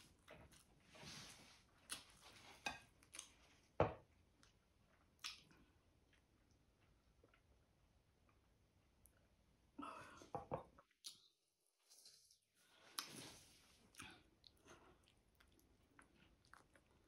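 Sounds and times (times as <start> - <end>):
wet chewing and lip smacks: 4.4 - 7.5, 13.9 - 17.0.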